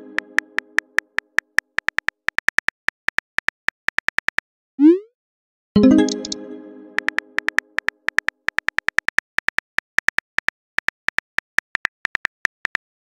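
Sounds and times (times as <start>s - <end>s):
phone keyboard typing clicks: 0.6s - 4.4s, 7.0s - 13.0s
chime: 5.8s - 7.0s.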